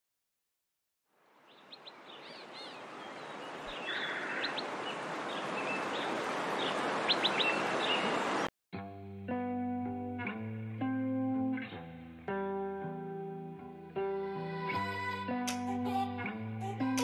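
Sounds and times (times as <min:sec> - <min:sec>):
birds chirping: 0:01.4 - 0:08.5
electric guitar music: 0:08.8 - 0:17.0.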